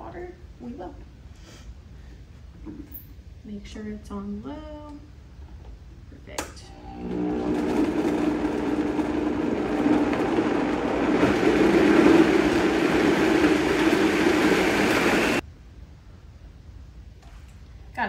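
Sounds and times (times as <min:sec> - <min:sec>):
blender churning frozen fruit: 0:06.7 - 0:15.4.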